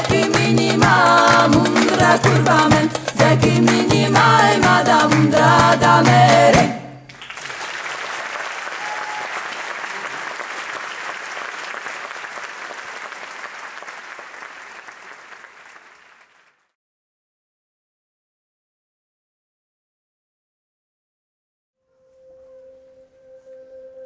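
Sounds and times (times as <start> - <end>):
music: 0.0 - 7.1, 21.8 - 24.0
audience applause: 7.1 - 16.6.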